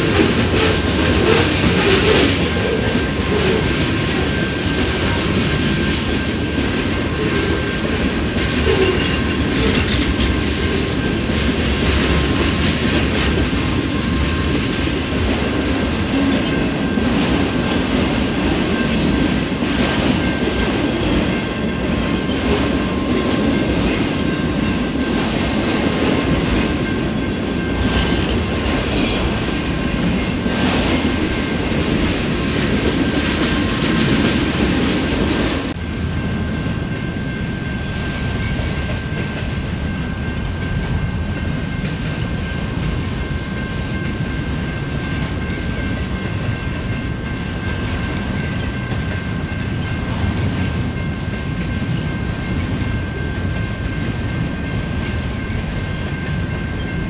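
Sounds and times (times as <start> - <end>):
train wheels clacking over rail joints: 0.0 - 35.8
heavy low train rumble: 0.0 - 57.0
high wheel squeal: 28.9 - 29.6.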